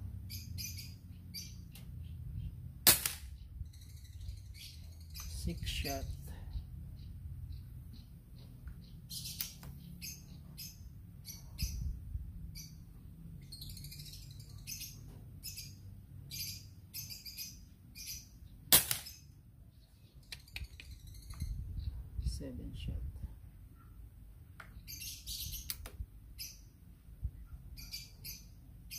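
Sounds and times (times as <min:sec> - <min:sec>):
birds chirping: 0:00.0 - 0:28.9
air rifle shot: 0:02.8 - 0:03.4, 0:18.7 - 0:19.2.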